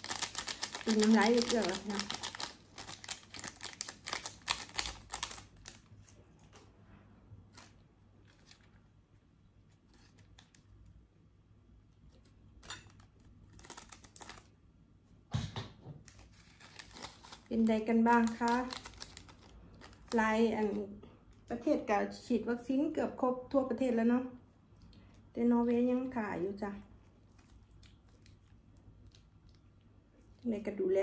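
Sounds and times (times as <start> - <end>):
plastic packets being handled: 0.0 - 6.7, 7.4 - 8.9, 12.1 - 14.6, 16.0 - 20.8.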